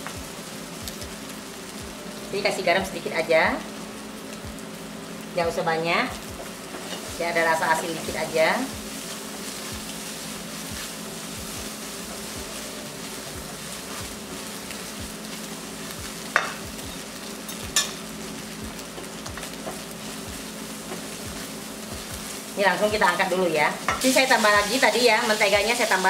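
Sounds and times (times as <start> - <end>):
eggs sizzling in butter: 0.0 - 26.0
spatula scraping a wok: 6.7 - 7.2.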